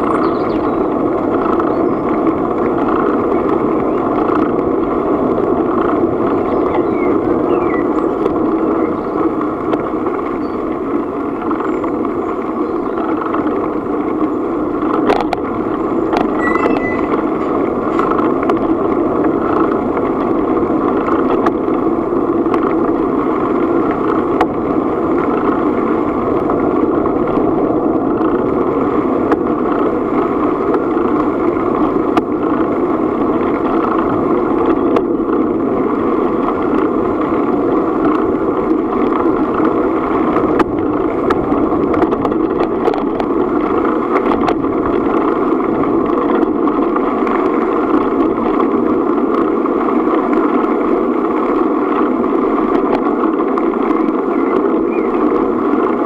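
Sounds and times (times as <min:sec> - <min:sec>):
bicycle tyres rolling on gravel: 0:00.0 - 0:56.0
wind on the microphone: 0:00.0 - 0:56.0.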